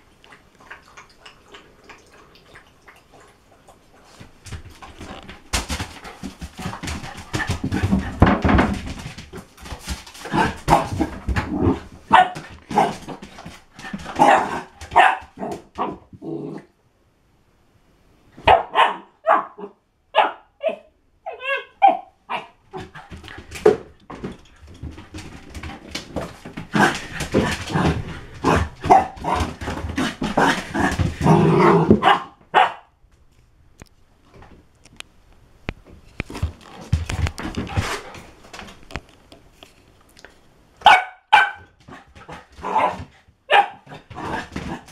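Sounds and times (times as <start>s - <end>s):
puppy barking: 12.1s - 12.9s, 14.2s - 16.0s, 18.4s - 22.6s, 32.0s - 32.9s, 40.8s - 41.7s, 42.6s - 44.0s.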